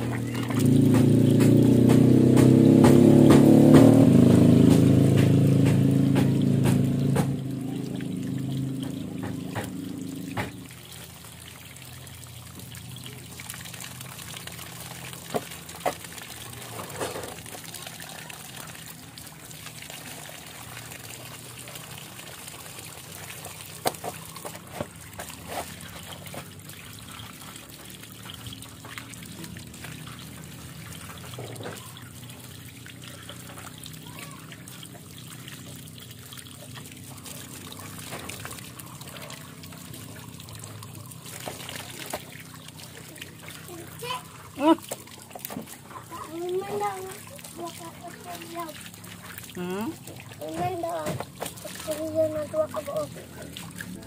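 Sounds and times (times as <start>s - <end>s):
low droning hum: 0.0s - 13.2s
tap water splashing on feet: 0.0s - 54.0s.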